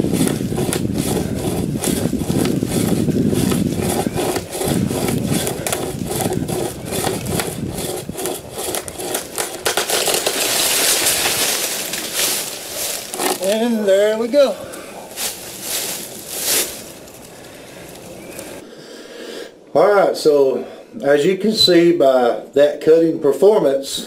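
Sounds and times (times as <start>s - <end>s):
chain saw rasping through limb: 0.0s - 18.6s
limb breaking away: 8.7s - 13.7s.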